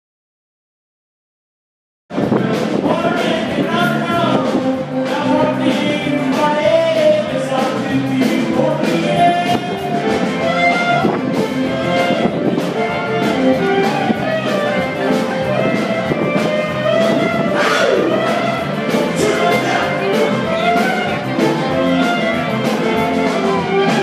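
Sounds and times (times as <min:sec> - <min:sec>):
steady drum beat: 0:02.1 - 0:24.0
person singing: 0:02.2 - 0:11.1, 0:14.0 - 0:24.0
upbeat music: 0:02.4 - 0:24.0.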